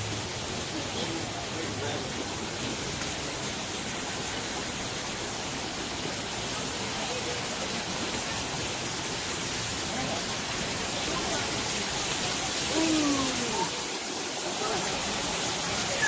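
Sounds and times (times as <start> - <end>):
waterfall rushing: 0.0 - 16.0
faint voices of people: 5.9 - 16.0.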